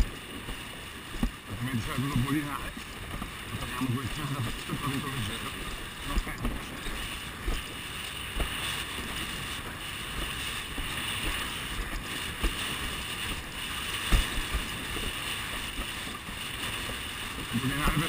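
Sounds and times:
water rushing past board: 0.0 - 18.0
wind buffeting microphone: 0.0 - 18.0.

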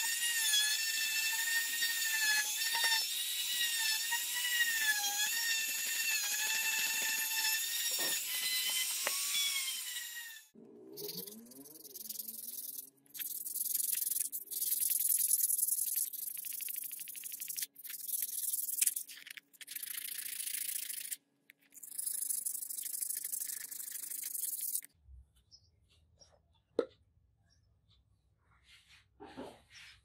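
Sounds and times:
blade being rubbed scratchy hiss: 11.8 - 24.9.

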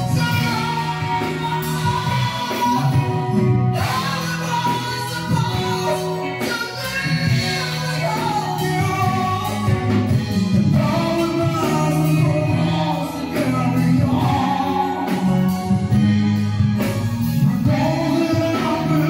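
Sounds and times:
woman singing: 0.0 - 9.9, 17.4 - 19.0
live rock band playing: 0.0 - 19.0.

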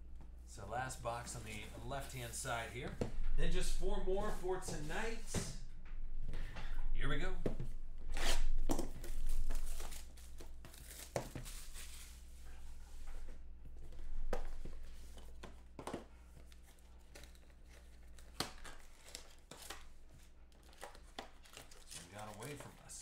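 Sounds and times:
plastic wrap tearing and crinkling: 8.1 - 12.1, 20.6 - 22.8.

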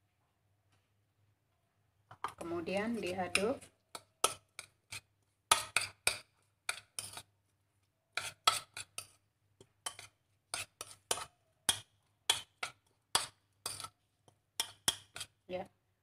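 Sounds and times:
spoon scraping against a bowl: 2.2 - 7.3, 8.1 - 15.4.

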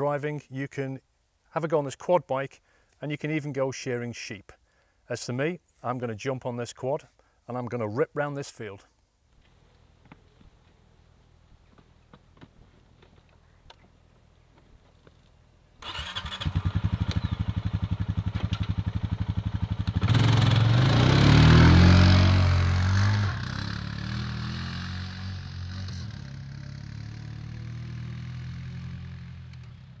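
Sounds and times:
quad bike engine revving: 15.8 - 29.7.

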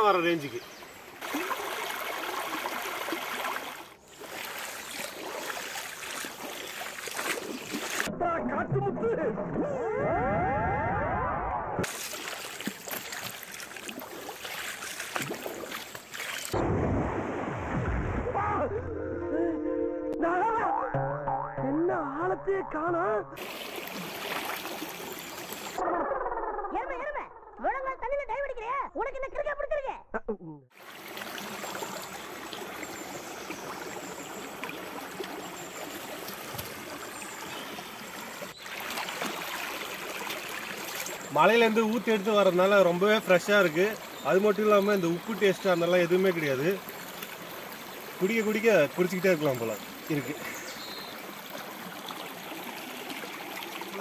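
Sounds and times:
swooping cartoon sound effect: 9.3 - 11.8, 18.2 - 23.4
stream babbling over rocks: 23.4 - 25.8, 30.8 - 54.0.

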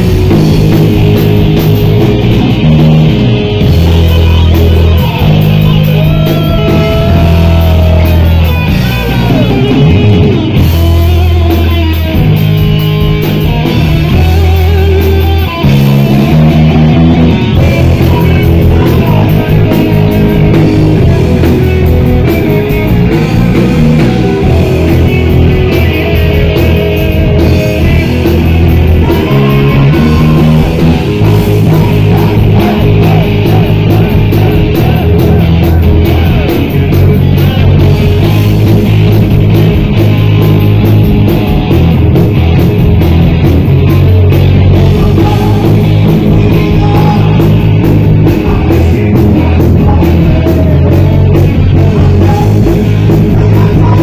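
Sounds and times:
distorted electric guitar: 0.0 - 54.0
heavy metal band playing: 0.0 - 54.0.

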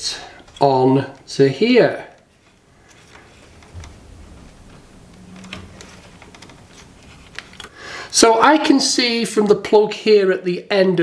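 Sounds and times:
light scraping: 0.0 - 7.8.

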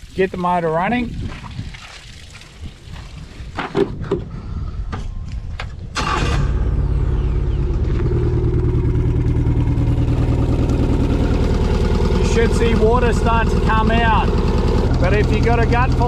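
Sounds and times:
outboard motor starting and idling: 5.9 - 16.0.

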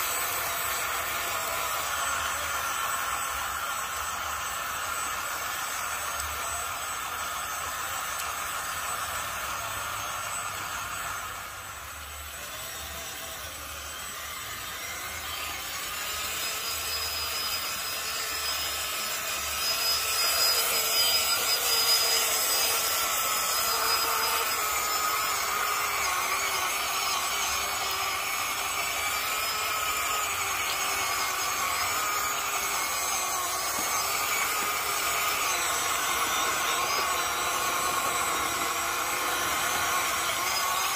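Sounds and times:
rc truck motor whining: 0.0 - 40.9.

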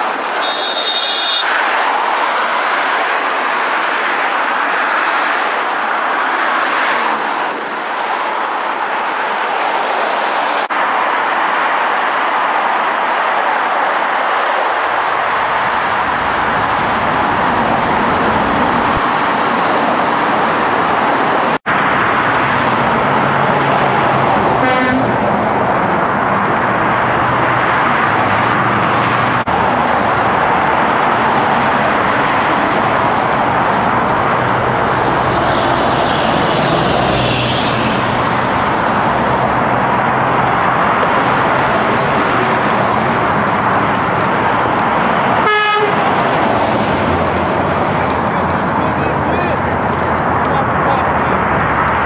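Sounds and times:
freeway traffic roar: 0.0 - 52.0
car horn honk: 0.3 - 1.6, 24.6 - 25.2, 45.4 - 46.1.

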